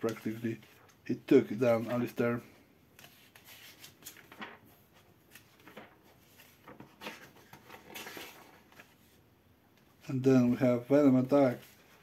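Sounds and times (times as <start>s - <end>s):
paper pages turning: 0.0s - 2.2s, 3.0s - 9.2s.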